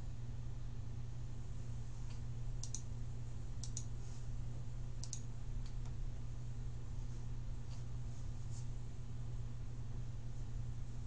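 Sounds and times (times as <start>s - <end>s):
steady low hum: 0.0s - 11.0s
computer mouse clicking: 2.1s - 2.9s, 3.6s - 3.9s, 5.0s - 6.0s.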